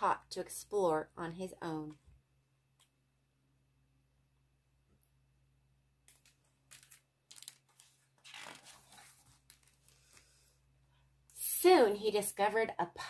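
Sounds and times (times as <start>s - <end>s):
paper pages rustling: 6.1s - 10.4s.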